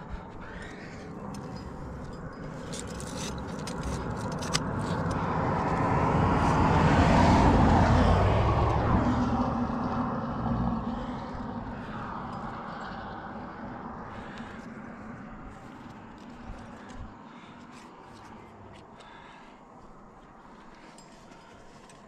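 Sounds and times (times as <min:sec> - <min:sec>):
climbing gear clinking: 0:00.0 - 0:06.6, 0:14.1 - 0:19.3, 0:19.9 - 0:22.0
vehicle passing: 0:00.0 - 0:21.4.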